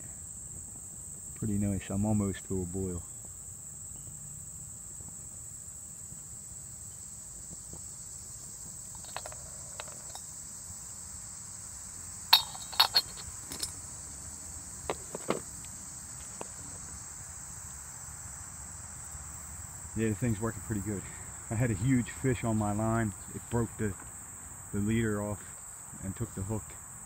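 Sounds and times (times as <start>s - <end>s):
insects trilling: 0.0s - 27.0s
pot lid clanking on metal pot: 12.4s - 13.7s.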